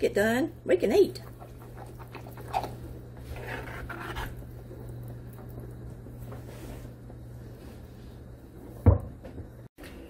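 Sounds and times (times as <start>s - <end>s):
spoon stirring thick sauce: 1.3s - 4.7s.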